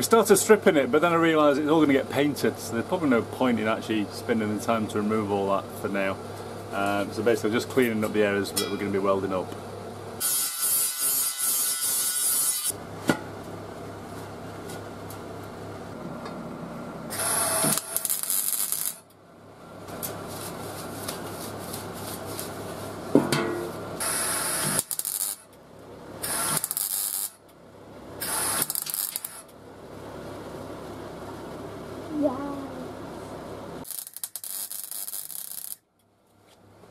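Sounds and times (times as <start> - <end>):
steady low hum: 0.0 - 10.2, 12.7 - 36.9
welding crackle: 10.2 - 12.8, 17.1 - 19.1, 24.0 - 25.6, 26.2 - 27.4, 28.2 - 29.6, 33.8 - 35.9.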